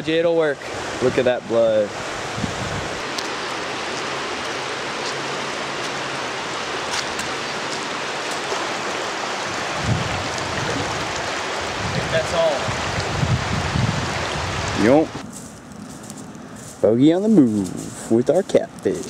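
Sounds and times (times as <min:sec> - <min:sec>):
water flowing over dam: 0:03.0 - 0:15.2.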